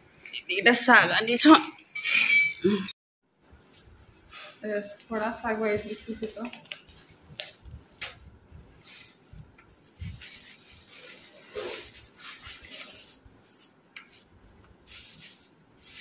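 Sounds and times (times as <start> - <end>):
leaves and plastic bag rustling: 4.3 - 7.0, 8.6 - 13.7.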